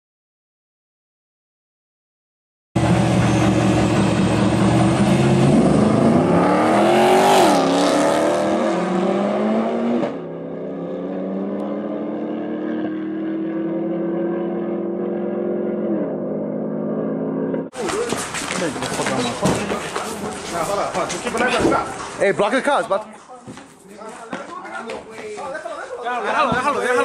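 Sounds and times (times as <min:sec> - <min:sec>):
steady engine drone: 0:02.8 - 0:07.0
cars accelerating at full throttle: 0:02.8 - 0:17.7.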